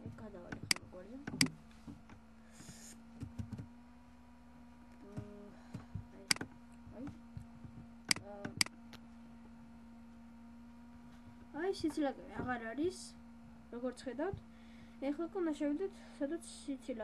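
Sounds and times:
low electrical hum: 0:00.0 - 0:17.0
computer mouse clicks: 0:00.5 - 0:01.5, 0:06.3 - 0:06.5.

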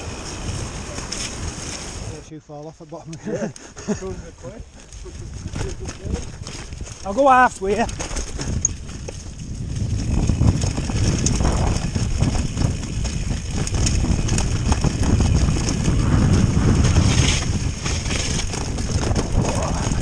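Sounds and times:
bike tyres rumbling over stones: 0:00.0 - 0:02.3, 0:04.7 - 0:20.0
bike rattling and knocking: 0:04.7 - 0:20.0.

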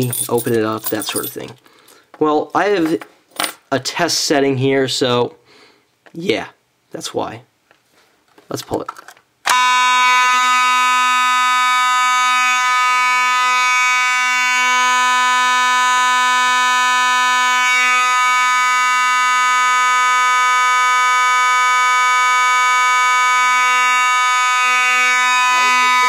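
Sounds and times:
fire alarm horn buzzing: 0:09.5 - 0:26.0.

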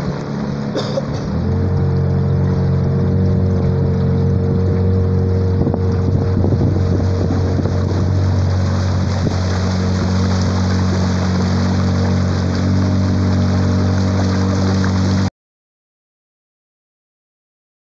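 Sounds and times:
outboard motor running: 0:00.0 - 0:15.3
water splashing along hull: 0:00.0 - 0:15.3
wind on microphone: 0:01.8 - 0:15.3.

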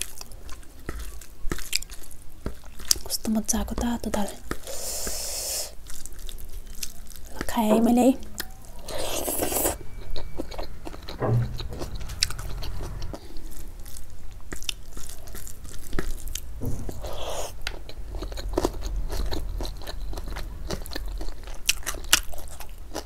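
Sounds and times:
person chewing crunchy food: 0:00.0 - 0:03.1, 0:04.5 - 0:07.5, 0:08.4 - 0:11.2, 0:13.2 - 0:23.0.

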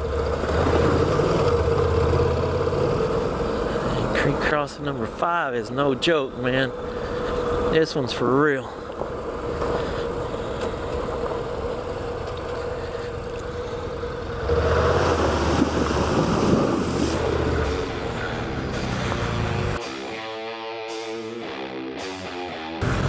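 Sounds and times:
motorcycle engine running: 0:00.0 - 0:04.9, 0:06.3 - 0:20.2, 0:21.1 - 0:23.0
water splashing and spraying: 0:14.4 - 0:19.6.

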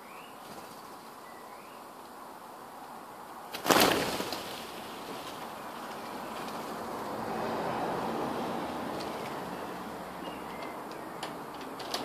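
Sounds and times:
flock of birds wingbeats: 0:03.5 - 0:07.2.

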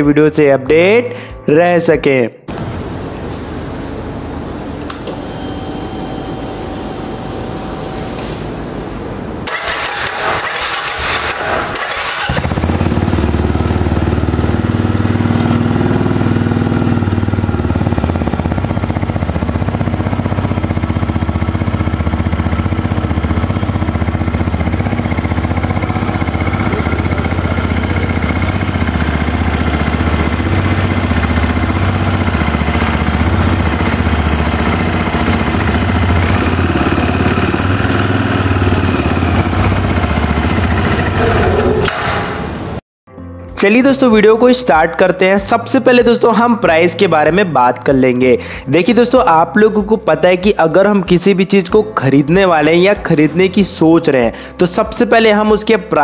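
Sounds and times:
electric starter cranking: 0:09.4 - 0:42.1
motorcycle engine idling: 0:09.8 - 0:41.4.

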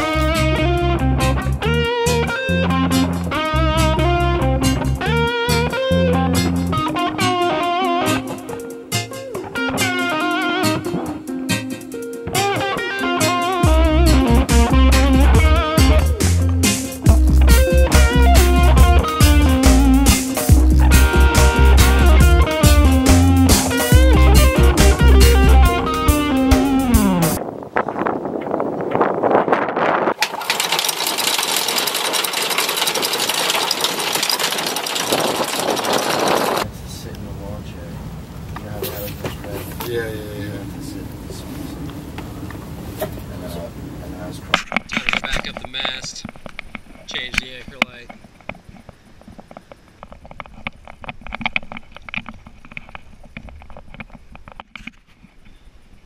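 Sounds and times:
anchor windlass motor running: 0:29.0 - 0:36.7, 0:44.7 - 0:55.1
chain rattling: 0:30.2 - 0:36.6.

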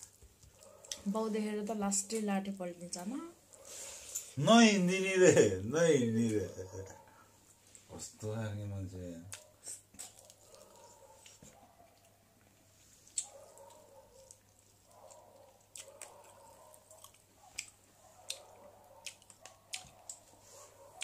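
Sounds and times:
person chewing food: 0:09.3 - 0:21.0.

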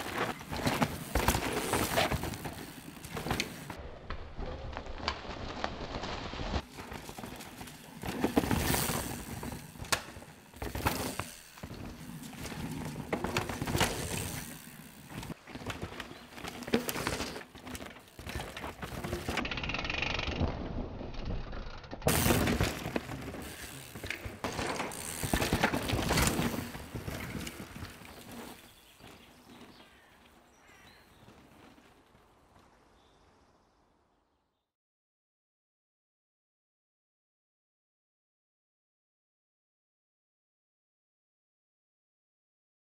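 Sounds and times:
bike rattling over rocks: 0:00.0 - 0:03.8, 0:04.6 - 0:30.0
bike tyres skidding on dirt: 0:00.0 - 0:33.3.

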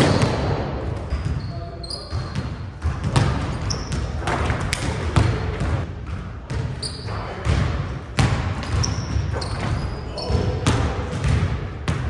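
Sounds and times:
sneaker squeaks: 0:00.0 - 0:05.4, 0:06.5 - 0:07.6, 0:08.6 - 0:11.4
basketball bouncing on hardwood: 0:02.1 - 0:06.7, 0:10.6 - 0:12.0.

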